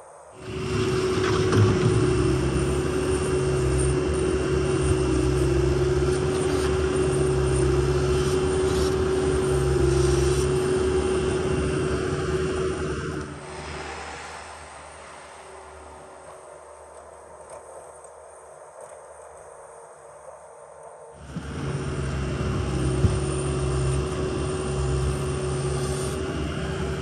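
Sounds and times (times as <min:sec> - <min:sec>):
loader diesel engine running hard: 0:00.4 - 0:17.1, 0:21.2 - 0:27.0.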